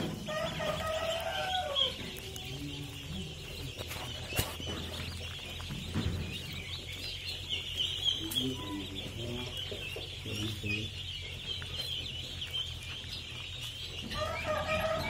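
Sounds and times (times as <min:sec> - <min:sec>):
ducklings peeping: 0:00.0 - 0:15.0.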